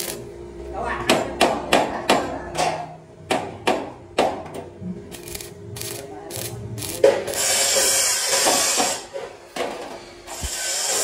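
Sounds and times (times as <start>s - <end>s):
welding arc crackles: 0.0s - 0.3s, 5.1s - 9.0s
welding arc sizzling hiss: 0.0s - 0.4s, 5.1s - 11.0s.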